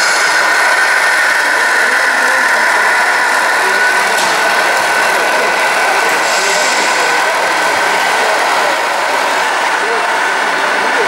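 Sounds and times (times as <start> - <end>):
diesel engine idle through speaker: 1.4 - 8.3.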